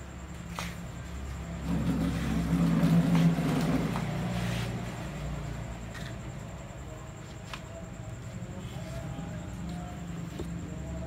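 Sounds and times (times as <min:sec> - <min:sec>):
passing vehicle engine rumble: 0:01.1 - 0:06.9.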